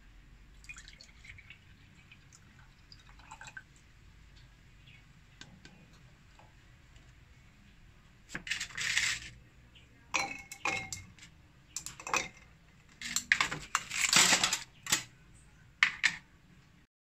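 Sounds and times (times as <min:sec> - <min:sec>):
ice cubes clinking in glass: 0:10.2 - 0:11.1
ice rattling in plastic tray: 0:13.0 - 0:14.7.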